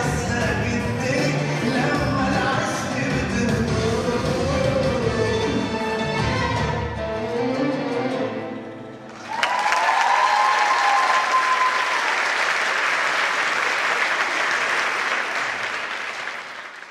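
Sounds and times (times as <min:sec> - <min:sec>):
dance music: 0:00.0 - 0:07.8
audience applause: 0:09.1 - 0:16.9
high cheer: 0:09.2 - 0:16.6.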